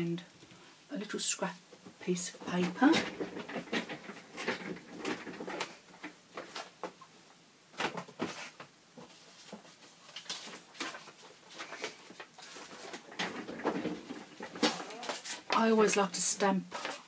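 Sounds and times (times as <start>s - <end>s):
papers rustling: 2.4s - 7.0s, 7.7s - 17.0s.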